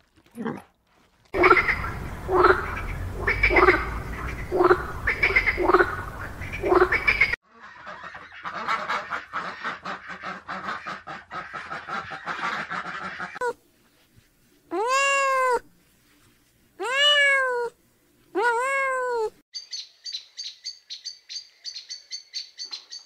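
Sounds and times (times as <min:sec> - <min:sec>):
frog calling: 0:01.4 - 0:07.4
duck quacking: 0:01.4 - 0:13.4.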